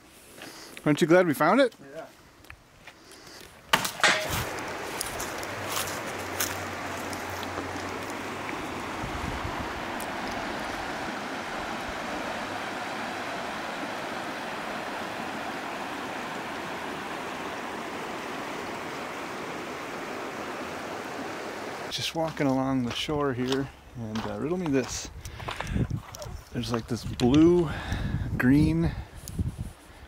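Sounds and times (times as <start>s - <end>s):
stream rushing over stones: 4.0s - 22.0s.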